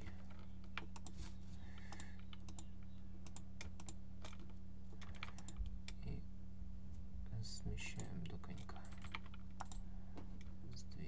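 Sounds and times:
keyboard and mouse clicking: 0:00.0 - 0:01.2, 0:01.8 - 0:06.1, 0:07.9 - 0:09.8
low electrical hum: 0:00.0 - 0:11.0.

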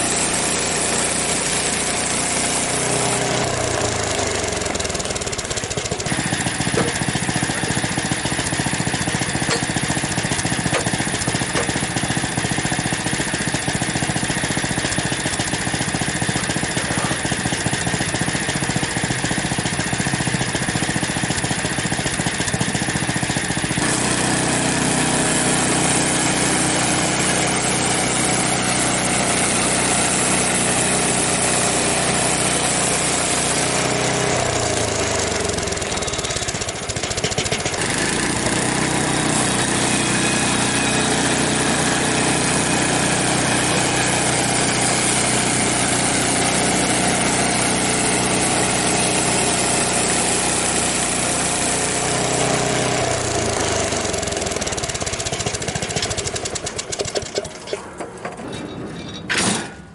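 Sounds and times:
band blade cutting log: 0:00.0 - 0:19.0, 0:37.3 - 0:50.4
sawmill gasoline engine running: 0:00.0 - 0:59.6.

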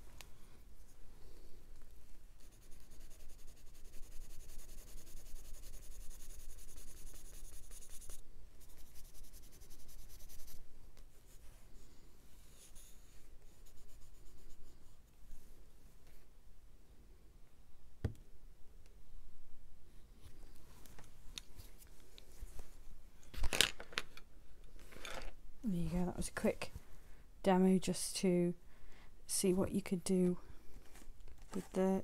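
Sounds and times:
pencil scribbling on paper: 0:02.4 - 0:10.6, 0:12.6 - 0:14.7.

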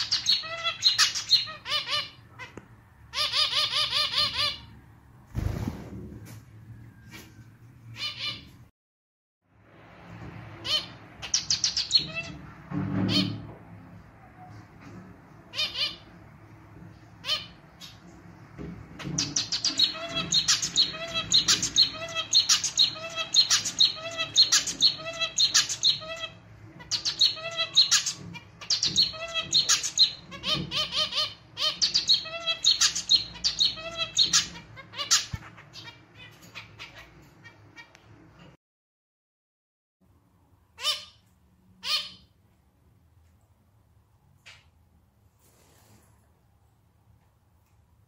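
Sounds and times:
finch singing: 0:00.0 - 0:04.7, 0:10.6 - 0:12.4, 0:19.0 - 0:37.9.

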